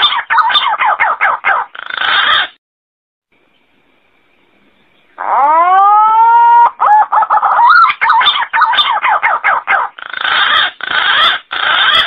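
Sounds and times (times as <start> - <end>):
pigeon calling: 0.0 - 2.6, 5.2 - 12.0.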